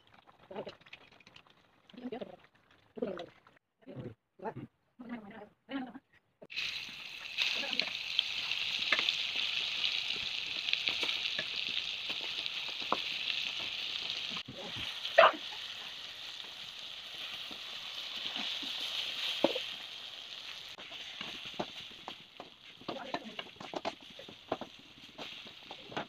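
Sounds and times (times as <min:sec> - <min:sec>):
oil popping: 0:06.5 - 0:15.0
crab frying in hot oil: 0:06.5 - 0:26.0
spatula stirring in pan: 0:06.5 - 0:26.0.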